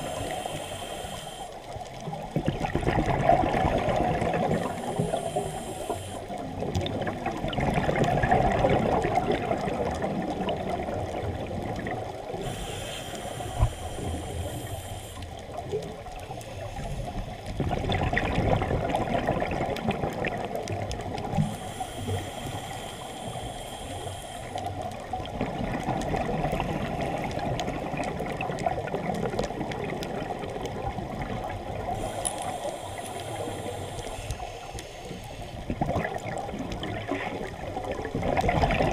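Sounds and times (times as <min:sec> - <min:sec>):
regulator breathing hiss: 0:00.0 - 0:01.9, 0:04.4 - 0:06.6, 0:12.2 - 0:17.5, 0:21.3 - 0:25.2, 0:31.8 - 0:35.7
underwater bubbling rush: 0:00.0 - 0:38.9.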